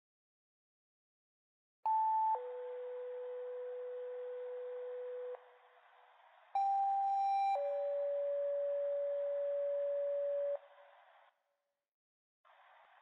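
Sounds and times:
two-tone paging tones: 6.6s - 10.5s
radio hiss: 10.6s - 11.3s, 12.5s - 13.0s.

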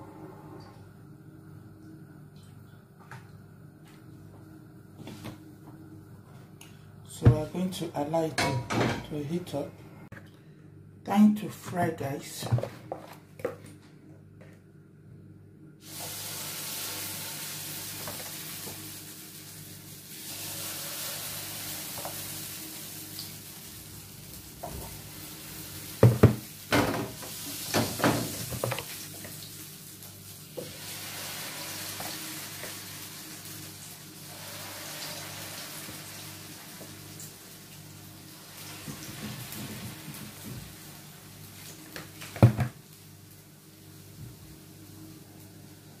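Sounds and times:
batter sizzling in hot oil: 15.8s - 45.9s
knocks against frying pan: 26.0s - 27.0s.

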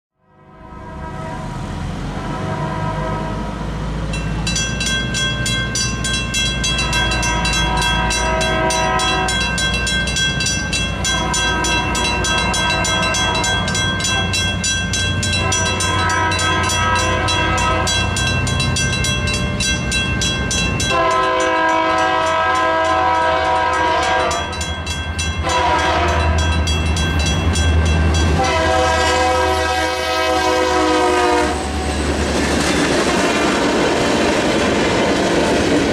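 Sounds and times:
locomotive horn blasts: 0.2s - 4.0s, 6.7s - 9.8s, 10.6s - 14.6s, 15.2s - 18.4s, 20.8s - 26.7s, 28.2s - 31.9s
locomotive engine rumble: 0.6s - 35.9s
crossing signal bell ringing: 4.0s - 33.0s.

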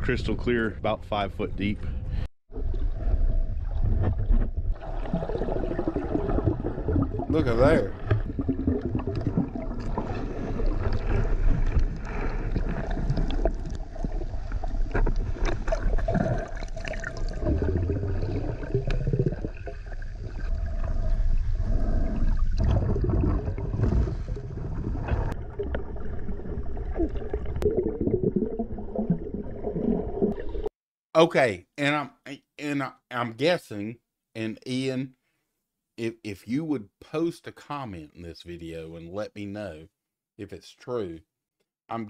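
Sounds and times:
underwater water gurgling and sloshing: 0.0s - 30.7s.

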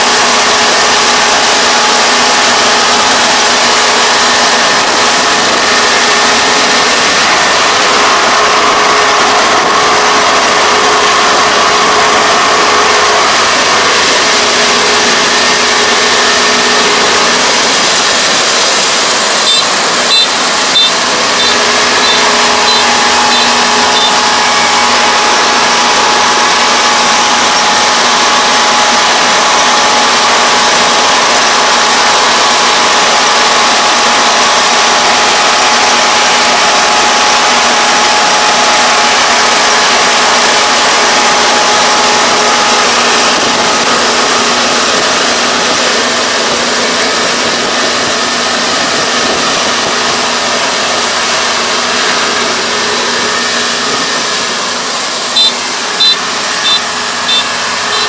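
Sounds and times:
combine harvester running: 0.0s - 58.0s
short high beeps: 19.3s - 25.1s, 55.3s - 58.0s.

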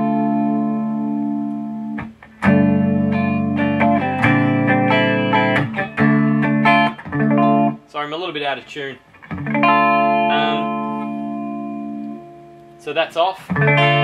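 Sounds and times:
electric guitar chords with chorus: 0.0s - 7.8s, 9.2s - 12.8s, 13.5s - 14.0s.

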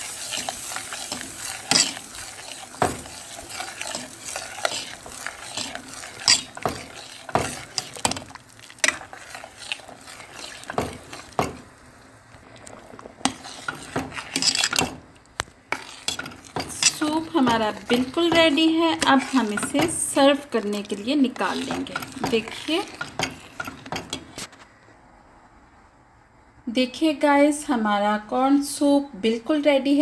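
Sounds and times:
metal spoon scraping steel pot: 0.0s - 11.7s, 13.2s - 15.0s, 15.7s - 24.5s
simmering soup hiss: 0.0s - 14.5s.

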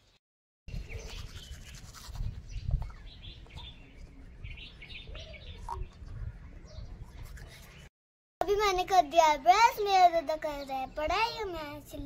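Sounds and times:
birds chirping: 0.0s - 7.9s
toothbrush scrubbing teeth: 1.1s - 2.4s.

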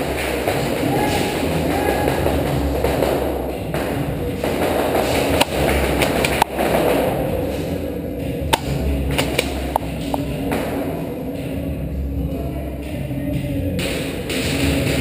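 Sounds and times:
sharp airsoft cracks: 0.0s - 7.2s, 8.5s - 10.8s.

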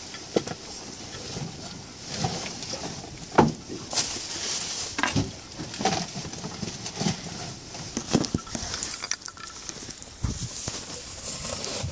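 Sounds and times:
clothing rubbing on microphone: 9.8s - 11.9s.

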